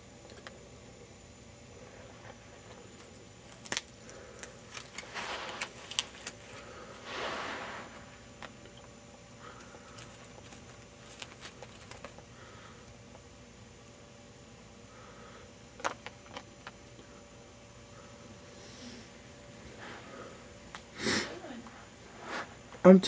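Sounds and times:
lizard biting lettuce: 0:03.4 - 0:06.6.

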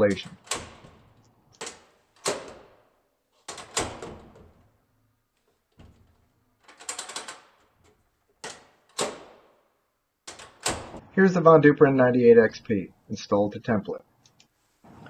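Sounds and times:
metallic clacks of door latch: 0:00.0 - 0:04.7, 0:05.7 - 0:09.5, 0:10.2 - 0:11.0.

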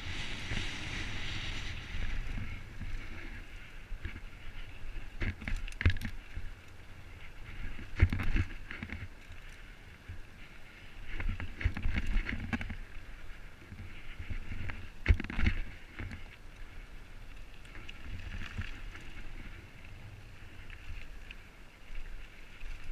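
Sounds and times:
wind noise on microphone: 0:00.0 - 0:09.1, 0:11.0 - 0:16.4
bike rattling: 0:00.0 - 0:22.9.

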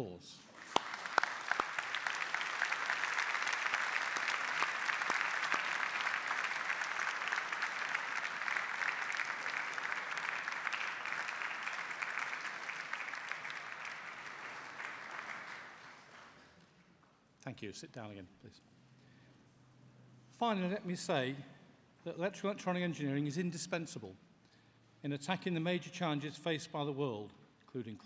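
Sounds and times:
crowd applauding: 0:00.5 - 0:16.6.

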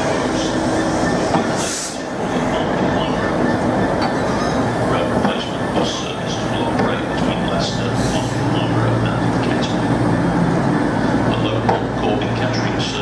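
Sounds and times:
diesel locomotive engine: 0:00.0 - 0:13.0
wheel and rail noise: 0:00.0 - 0:13.0.

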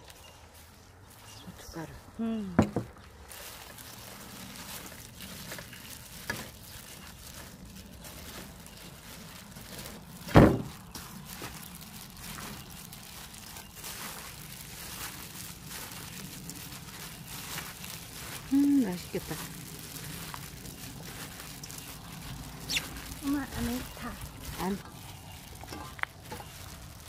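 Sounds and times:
wet squishing of cabbage: 0:00.0 - 0:27.0
loud thump: 0:10.3 - 0:10.7.

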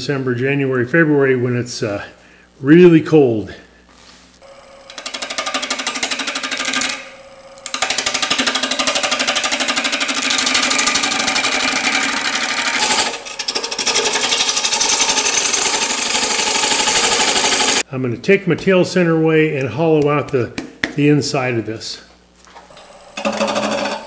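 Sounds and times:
wood lathe gouge cutting rattle: 0:04.9 - 0:17.8.

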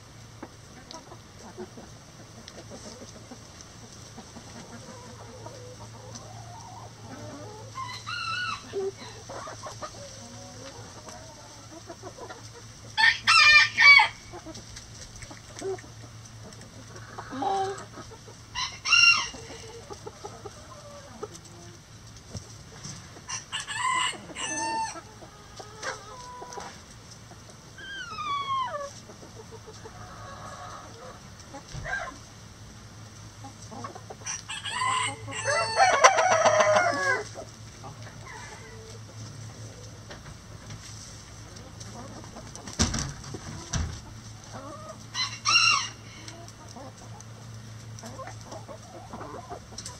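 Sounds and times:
chickens clucking: 0:00.0 - 0:49.9
rooster crowing: 0:13.0 - 0:14.3, 0:18.6 - 0:19.7, 0:23.3 - 0:25.0, 0:34.3 - 0:37.3, 0:45.1 - 0:46.3.

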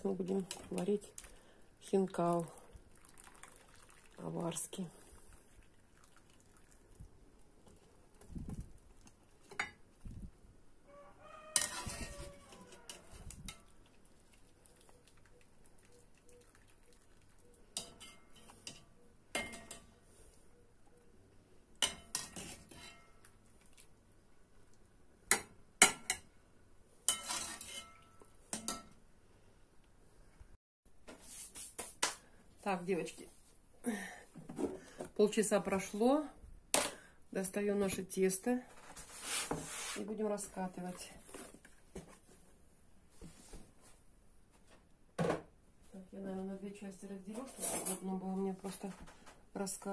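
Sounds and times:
metal utensils clinking on pot: 0:11.6 - 0:12.2, 0:17.8 - 0:19.9, 0:27.1 - 0:29.0.

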